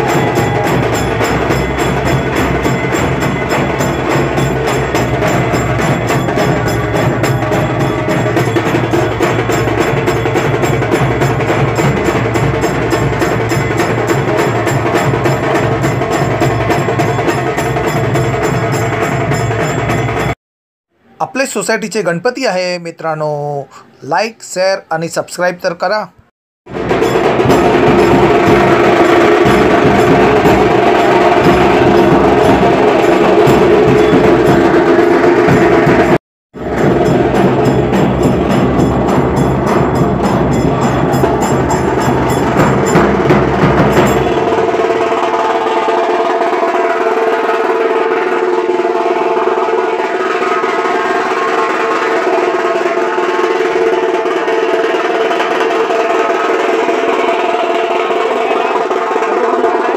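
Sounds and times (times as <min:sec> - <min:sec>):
deep drum: 0:00.0 - 0:20.3, 0:26.7 - 0:46.5
high ringing tones: 0:00.0 - 0:20.3, 0:26.9 - 0:35.7, 0:36.6 - 0:45.5
fast percussion drumming: 0:00.0 - 0:20.4, 0:26.7 - 0:59.9
rhythmic clacking: 0:00.0 - 0:20.4, 0:26.7 - 0:49.6.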